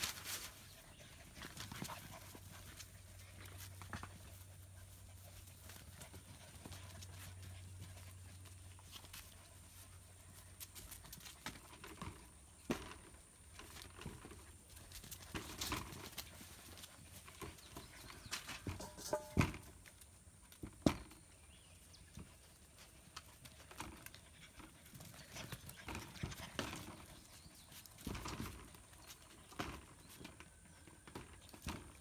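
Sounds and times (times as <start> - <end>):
paws pattering on concrete: 0.0 - 12.2, 21.6 - 32.0
scuffs and knocks: 11.7 - 19.8.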